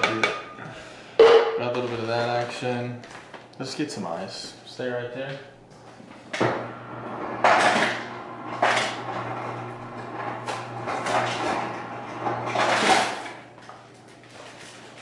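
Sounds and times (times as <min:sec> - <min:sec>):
freezer drawer opening and closing: 0:06.4 - 0:13.4.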